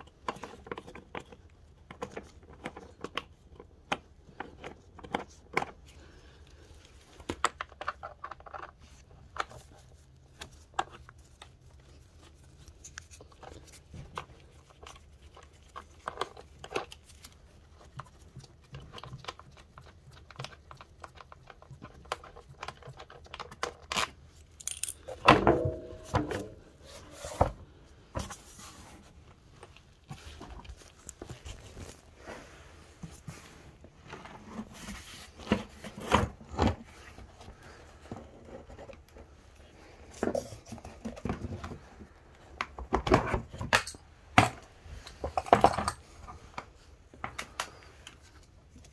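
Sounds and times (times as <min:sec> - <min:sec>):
socket tool clicking and scraping: 0:22.2 - 0:25.2.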